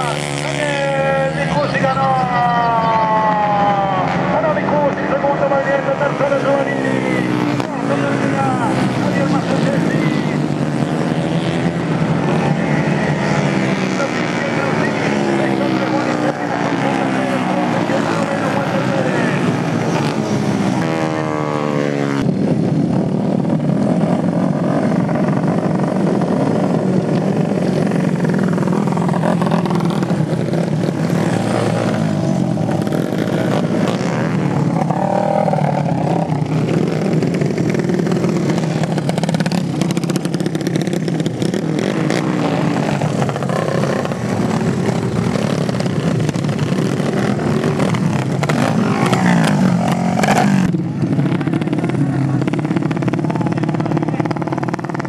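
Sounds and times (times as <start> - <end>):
kart engines at high revs: 0.0 - 55.0.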